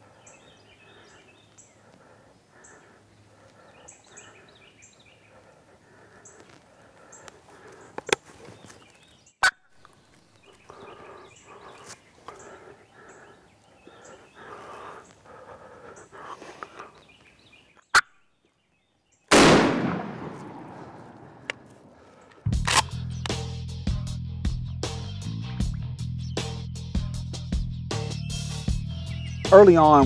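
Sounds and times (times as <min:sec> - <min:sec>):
wild turkey calling: 0:00.0 - 0:08.2, 0:09.4 - 0:18.2
loud shotgun shot: 0:19.3 - 0:21.5
sharp clicks: 0:22.3 - 0:23.4.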